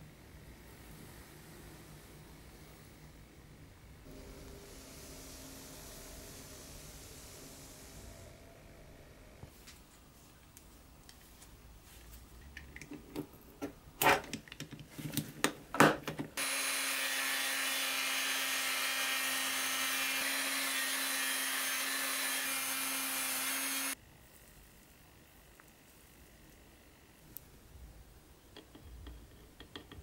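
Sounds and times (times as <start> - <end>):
handling knocks and clicks: 12.4 - 16.4
rotary tool whining: 16.4 - 24.0.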